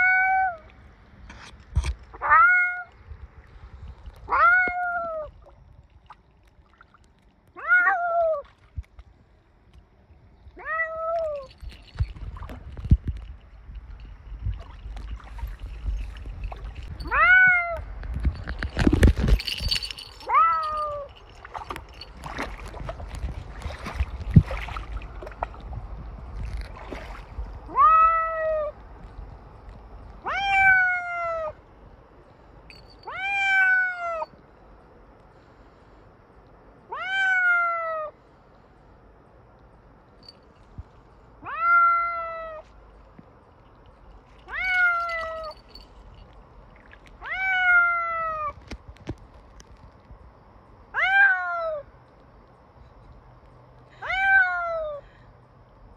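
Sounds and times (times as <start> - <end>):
cat meowing loudly: 0.0 - 0.7, 2.2 - 2.9, 4.3 - 5.3, 7.6 - 8.4, 17.0 - 17.8, 27.7 - 28.8, 30.2 - 31.6, 33.1 - 34.2, 36.9 - 38.1, 41.4 - 42.6, 47.2 - 48.6, 50.9 - 51.8, 54.0 - 55.0
water splashing and sloshing: 2.9 - 30.8, 42.6 - 50.1.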